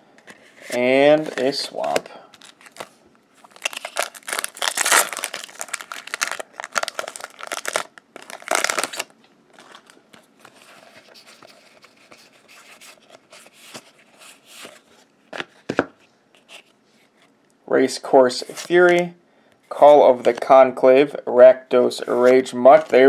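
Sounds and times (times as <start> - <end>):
trading cards rustling: 0.3 - 14.9
plastic foil wrapper crinkling: 2.3 - 10.0.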